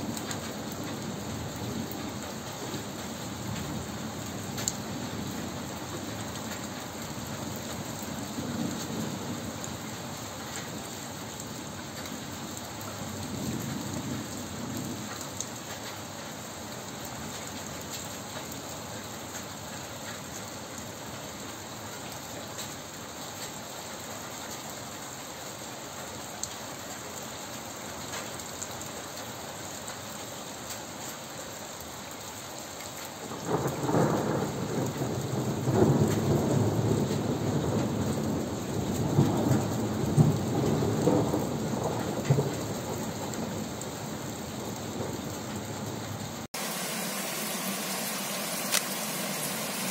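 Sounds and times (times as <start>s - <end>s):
steady rain falling: 0.0s - 49.9s
distant thunder rolling: 33.4s - 49.9s.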